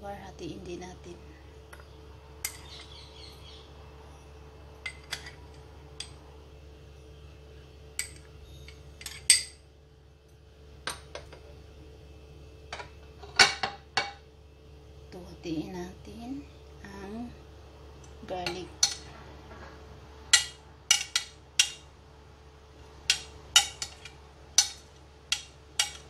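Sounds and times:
metal spoon clinking on porcelain: 0:08.0 - 0:09.6, 0:18.4 - 0:19.1, 0:23.1 - 0:26.0.

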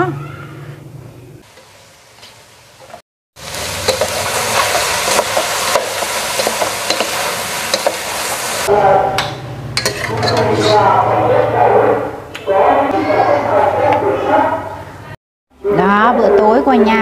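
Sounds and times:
vegetables sizzling in pot: 0:01.4 - 0:08.7
wooden spatula scraping: 0:01.5 - 0:08.6, 0:09.8 - 0:11.0.

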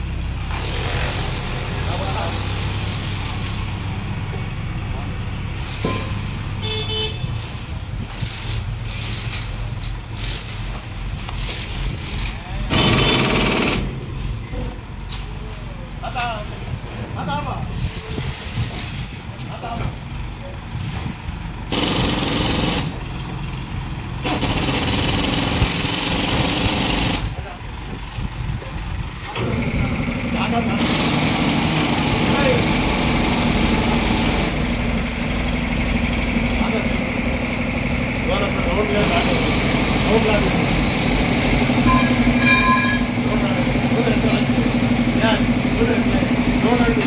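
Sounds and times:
vehicle engine running: 0:00.0 - 0:17.0, 0:20.0 - 0:47.0
horn toot: 0:06.6 - 0:07.5, 0:41.8 - 0:43.2.

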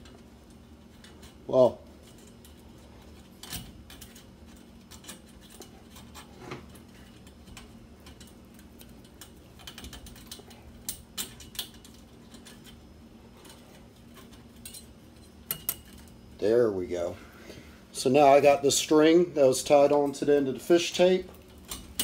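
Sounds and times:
wire clicking inside metal tube: 0:00.0 - 0:16.2, 0:21.3 - 0:22.0.

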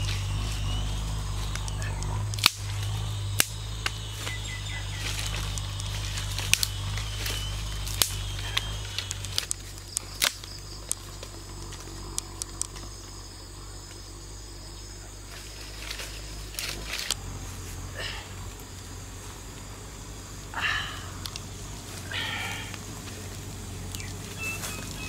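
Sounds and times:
bamboo sticks snapping: 0:00.0 - 0:13.0, 0:15.3 - 0:17.2, 0:21.2 - 0:21.5
twig fire crackling: 0:00.0 - 0:25.0.

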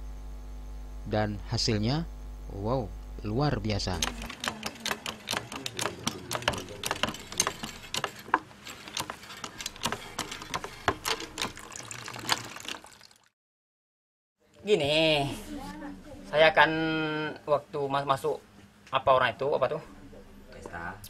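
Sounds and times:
coconut milk dripping: 0:09.9 - 0:13.3.

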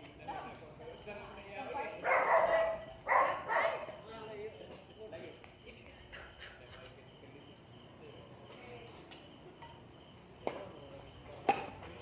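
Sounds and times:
crickets chirping: 0:00.0 - 0:12.0
racket striking shuttlecock: 0:11.4 - 0:11.8.

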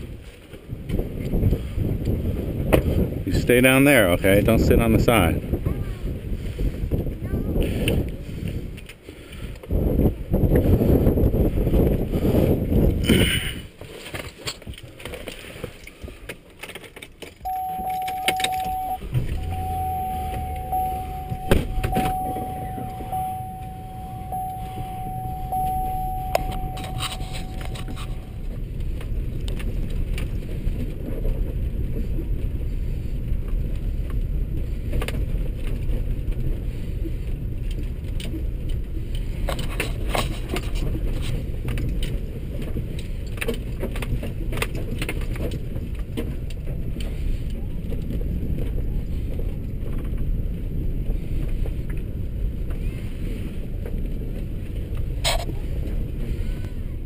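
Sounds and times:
truck engine starting and running: 0:17.4 - 0:31.8
vehicle warning chime: 0:17.5 - 0:28.5.

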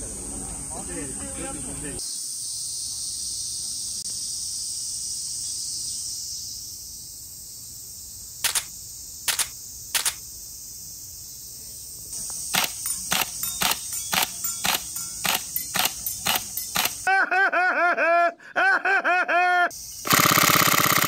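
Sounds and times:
insects buzzing: 0:00.0 - 0:17.2, 0:19.7 - 0:21.0
airsoft rifle shots: 0:08.4 - 0:08.7, 0:20.0 - 0:21.0.

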